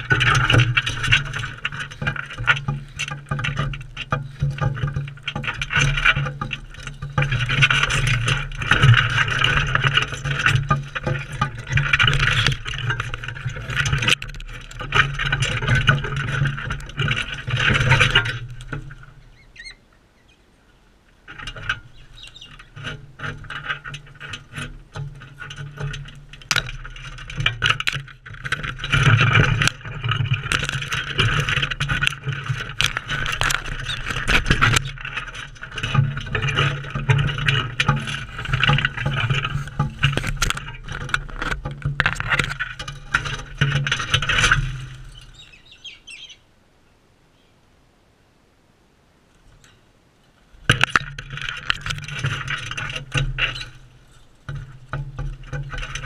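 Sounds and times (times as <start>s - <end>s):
parrots screeching and chattering: 19.2s - 20.4s, 21.9s - 22.7s, 45.2s - 46.4s
beaks pecking at a tray: 21.3s - 46.4s.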